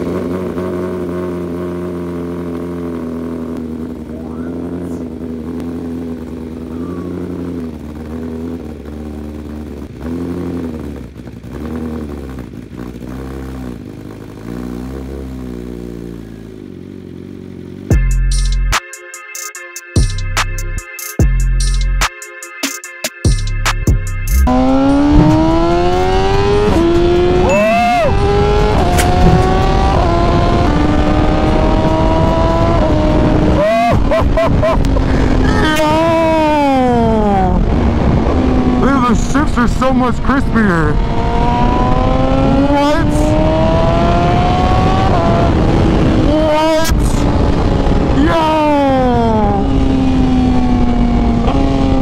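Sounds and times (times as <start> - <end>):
motorcycle engine revving through upshifts: 0.0 - 18.2, 23.7 - 52.0.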